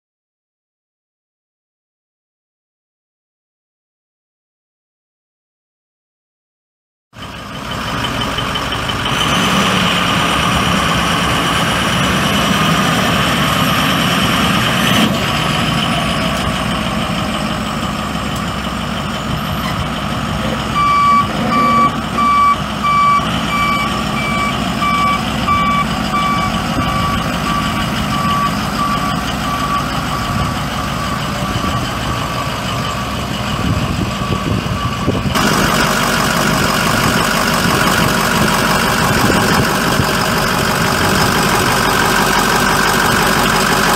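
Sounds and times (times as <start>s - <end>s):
diesel truck engine running: 7.2s - 43.9s
backup alarm beeping: 20.7s - 31.8s.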